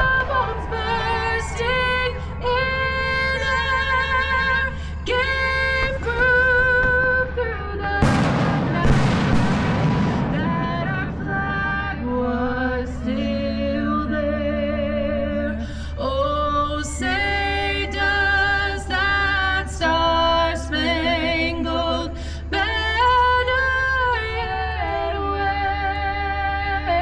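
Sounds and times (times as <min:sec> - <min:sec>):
music with singing voice: 0:00.0 - 0:27.0
echoing loud bangs: 0:08.0 - 0:13.6
low rumble: 0:08.0 - 0:15.3.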